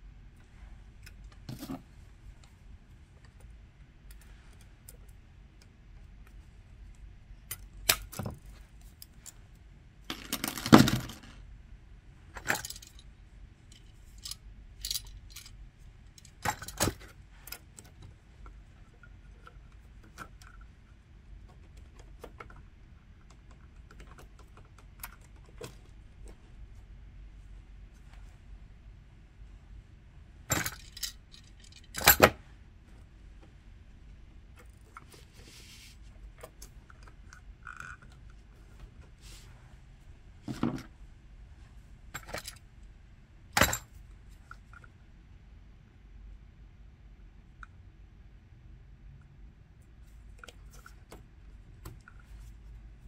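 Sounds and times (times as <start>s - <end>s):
metallic clicks and clinks: 12.4s - 13.1s, 13.7s - 15.6s, 30.5s - 32.3s, 42.2s - 42.6s.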